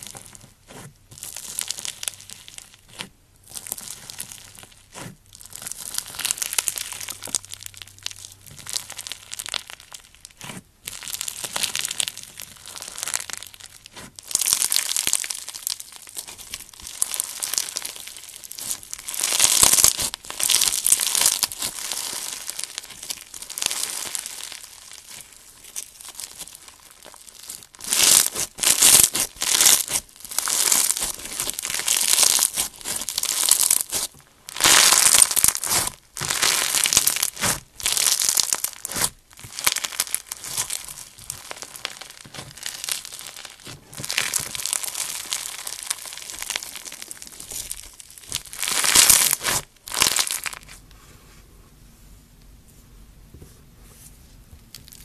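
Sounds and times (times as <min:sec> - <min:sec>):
foam slime crackling: 0:00.0 - 0:50.8.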